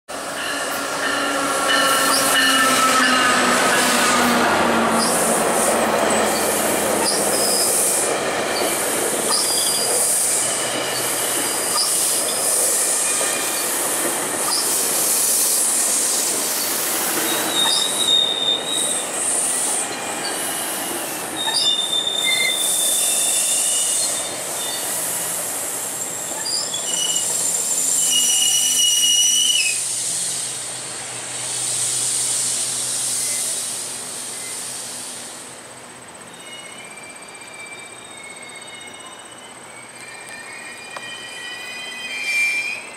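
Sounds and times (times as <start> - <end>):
train coaches rumbling past: 0.1 - 42.9
wheel and brake squeals: 0.3 - 4.2, 6.0 - 25.0, 26.0 - 30.2, 36.3 - 42.9.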